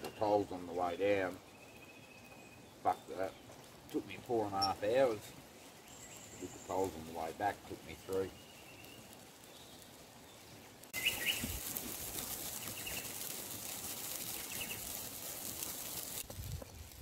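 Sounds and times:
steady outdoor hiss: 0.0 - 17.0
bird chirps: 1.4 - 3.6, 5.8 - 7.0, 7.9 - 11.6, 12.6 - 13.1, 14.4 - 14.9.

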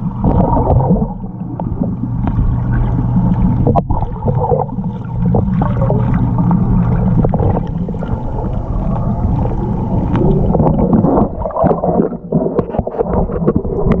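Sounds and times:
low steady hum: 0.0 - 14.0
muffled underwater gurgling: 0.0 - 14.0
scattered clicks and crackles: 7.2 - 14.0.

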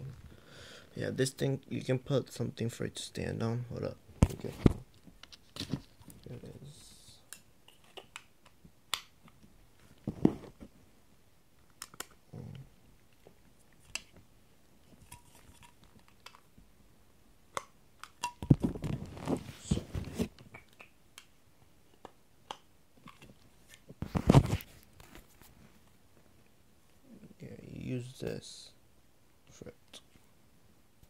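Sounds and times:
plastic rubbing and scraping: 18.5 - 20.4.

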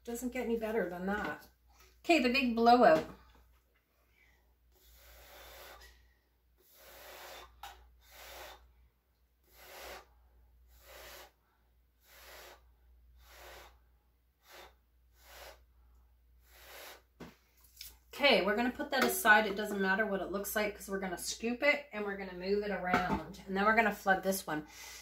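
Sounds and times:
person blowing puffs of breath: 4.8 - 8.8, 9.4 - 11.4, 12.0 - 15.7, 16.4 - 17.2, 24.7 - 25.0.

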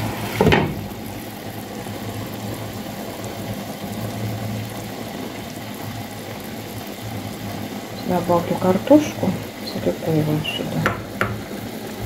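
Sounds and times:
soup boiling and bubbling: 0.0 - 12.0.

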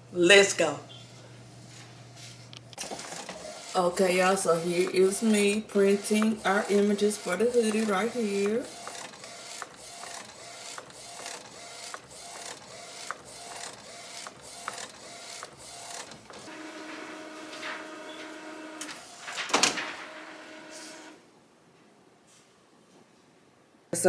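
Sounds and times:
printer carriage clicking and whirring: 2.8 - 21.1
printer motor hum: 2.8 - 21.2.

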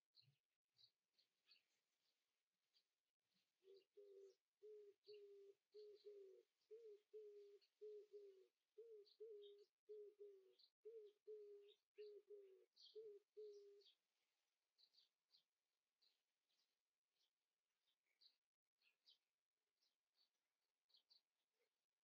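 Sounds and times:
short low bird calls: 3.6 - 14.0.

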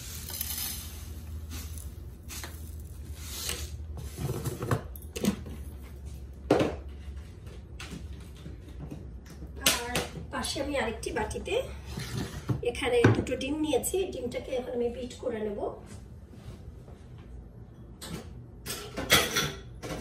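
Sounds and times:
bread crumbs poured onto plate: 0.0 - 3.8.

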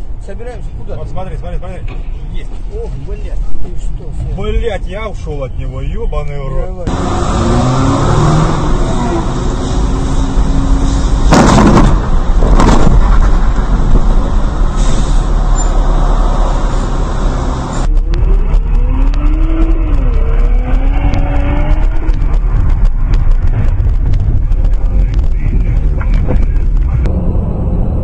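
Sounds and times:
car engine and tyre noise: 0.0 - 28.0
loud thumps: 10.7 - 15.9, 17.7 - 27.1.

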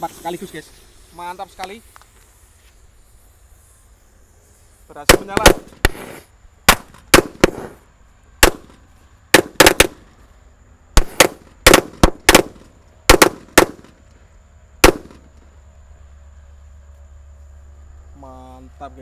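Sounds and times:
firecrackers banging: 4.9 - 10.2, 10.9 - 14.1, 14.8 - 15.5.

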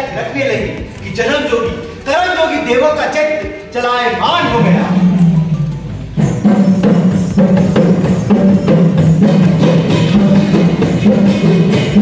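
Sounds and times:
hand drum played by hand: 4.4 - 12.0.

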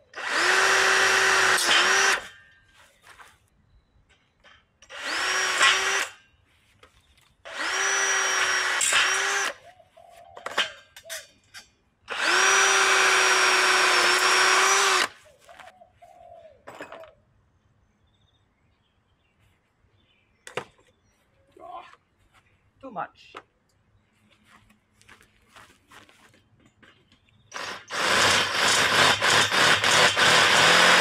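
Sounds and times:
electric drill whine: 0.1 - 2.3, 4.8 - 6.2, 7.5 - 9.6, 12.1 - 15.2, 27.5 - 31.0.

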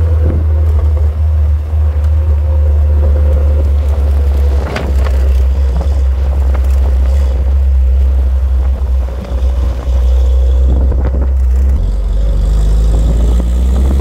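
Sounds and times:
car engine drone: 0.0 - 14.0
road rumble: 0.0 - 14.0
wind rush: 2.3 - 14.0
rattle: 3.0 - 14.0.

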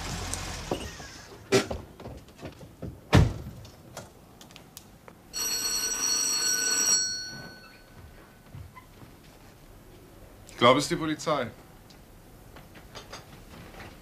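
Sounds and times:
electric doorbell ringing: 5.4 - 7.9.

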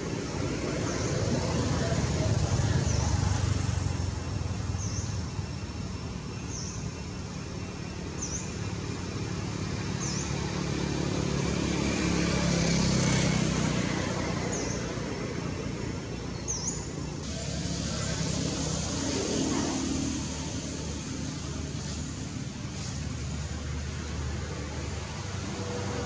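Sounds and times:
low traffic rumble: 0.0 - 26.0
bird chirping: 14.0 - 23.4.

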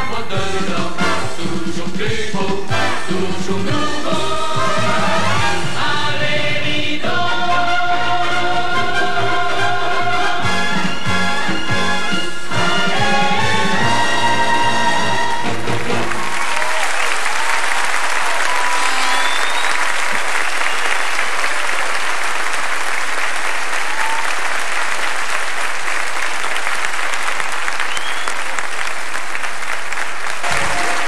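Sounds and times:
dance music: 0.0 - 16.4, 30.4 - 31.0
audience applauding: 12.5 - 31.0.

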